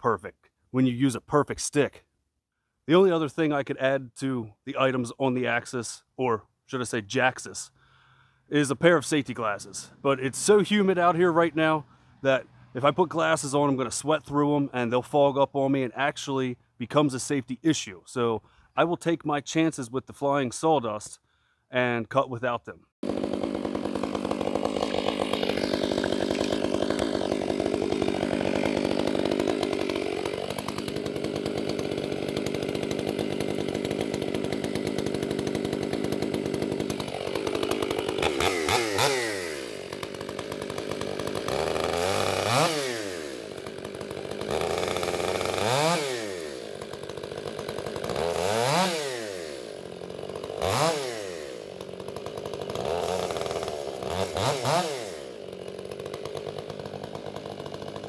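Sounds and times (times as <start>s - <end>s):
chainsaw running and revving: 8.5s - 15.3s, 23.0s - 58.0s.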